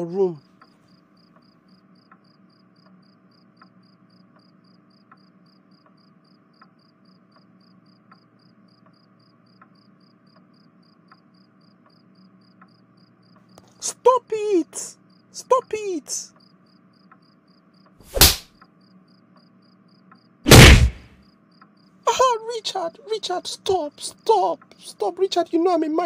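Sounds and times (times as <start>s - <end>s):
faint crickets chirping: 0.0s - 26.0s
faint regular ticks: 0.4s - 14.1s, 16.3s - 18.0s, 18.6s - 20.4s, 21.2s - 22.0s.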